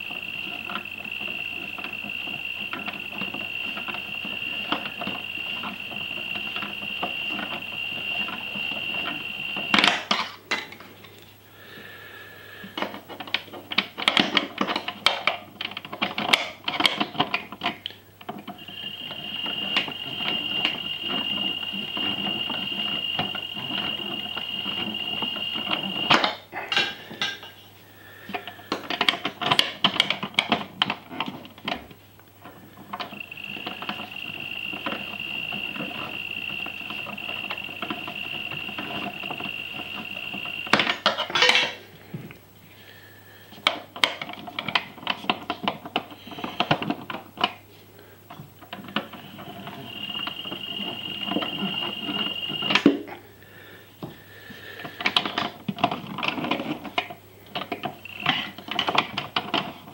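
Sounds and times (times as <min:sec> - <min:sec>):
toy washing machine motor whine: 0:00.0 - 0:10.6, 0:12.0 - 0:27.4, 0:32.5 - 0:41.8, 0:43.8 - 0:47.6, 0:48.7 - 0:59.9.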